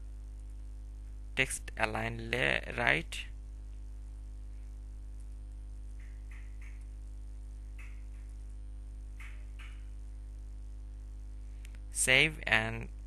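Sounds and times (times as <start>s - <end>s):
electrical mains hum: 0.0s - 13.0s.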